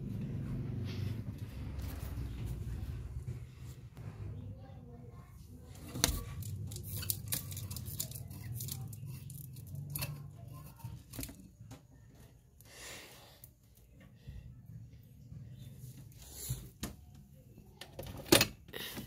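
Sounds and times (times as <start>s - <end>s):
low handling rumble: 0.0s - 7.0s.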